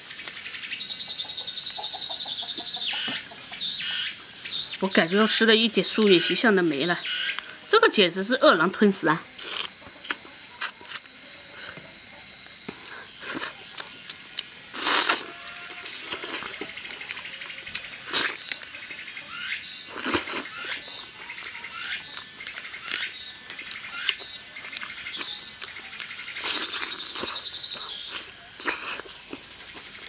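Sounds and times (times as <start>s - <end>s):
insects chirring: 0.0s - 30.0s
wet gnawing and sucking on meat: 9.3s - 11.2s, 12.6s - 18.6s, 19.8s - 30.0s.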